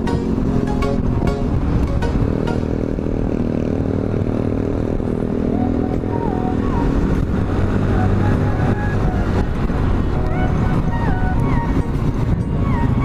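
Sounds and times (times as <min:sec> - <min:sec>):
short higher tones: 0:00.0 - 0:03.0
motor scooter engine running: 0:00.0 - 0:13.0
rush of riding wind: 0:00.0 - 0:13.0.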